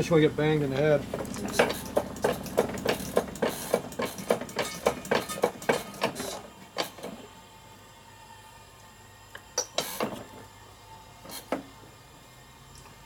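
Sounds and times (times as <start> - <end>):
hydraulic press pumping clicks: 1.1 - 7.3, 9.4 - 10.4.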